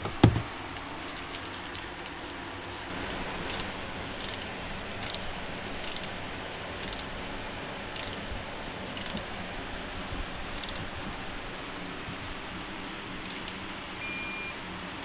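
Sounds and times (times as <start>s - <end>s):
wrench ratchet clicking: 4.2s - 5.2s, 5.8s - 6.1s, 6.8s - 7.1s, 8.0s - 8.2s, 9.0s - 9.2s, 10.6s - 10.8s, 13.2s - 13.6s.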